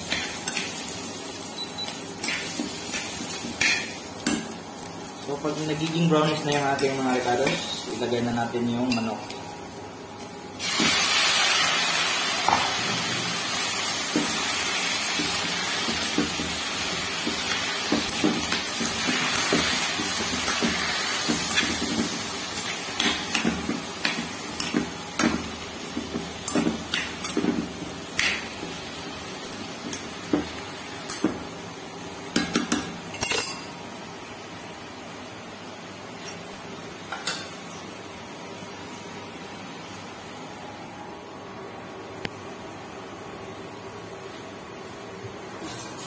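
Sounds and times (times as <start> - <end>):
chicken sizzling in a frying pan: 0.0 - 8.9, 10.4 - 31.6.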